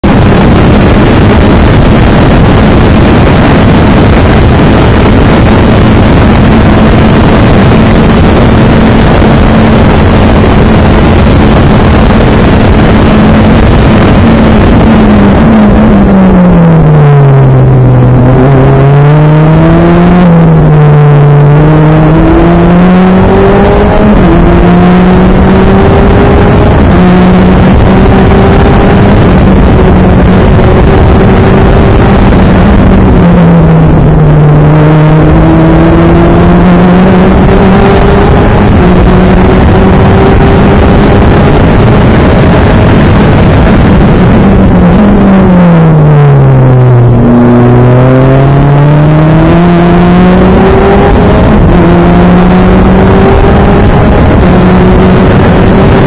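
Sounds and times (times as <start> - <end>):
race car engine revving: 0.0 - 56.0
wind rush: 0.0 - 56.0.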